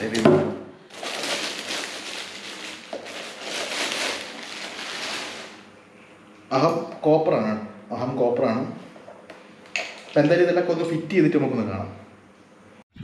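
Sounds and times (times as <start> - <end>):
packaging crinkling: 0.0 - 0.2, 0.9 - 5.7.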